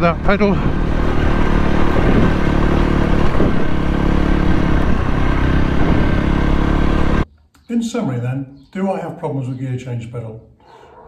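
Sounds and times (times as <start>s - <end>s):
wind noise: 0.0s - 6.4s
motorcycle engine running: 0.0s - 7.3s.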